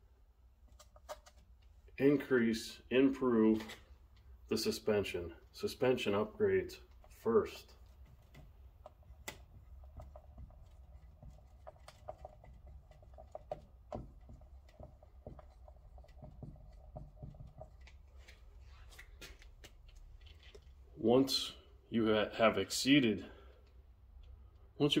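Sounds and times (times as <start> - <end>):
marker squeaking on whiteboard: 7.8 - 18.5
marker tapping on whiteboard: 8.3 - 18.0.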